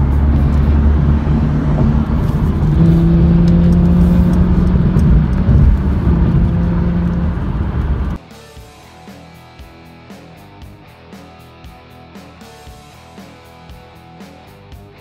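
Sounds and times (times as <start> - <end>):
car overtaking: 0.0 - 8.2
steady engine drone: 0.0 - 8.2
tyre and road rumble: 0.0 - 8.2.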